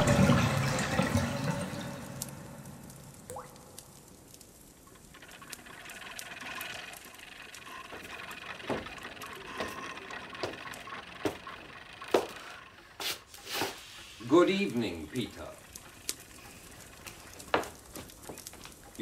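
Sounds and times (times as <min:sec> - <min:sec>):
water dripping and pattering: 0:00.0 - 0:19.0
water hiss: 0:13.0 - 0:18.3.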